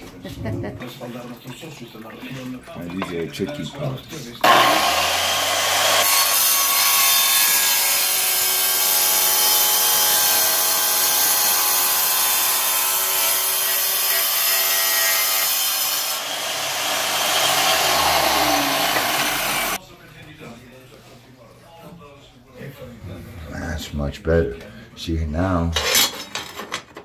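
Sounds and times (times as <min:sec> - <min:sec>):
saw motor humming: 0:04.4 - 0:06.6, 0:15.6 - 0:19.8
tile saw cutting tile: 0:04.4 - 0:19.8.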